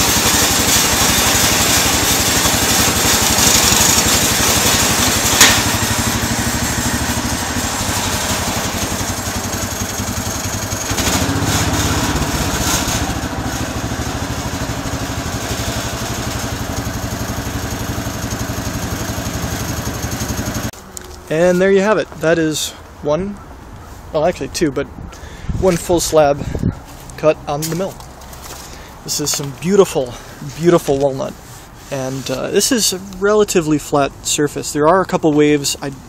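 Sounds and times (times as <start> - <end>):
small gas engine running: 0.0 - 20.7
sharp knock: 5.3 - 5.8.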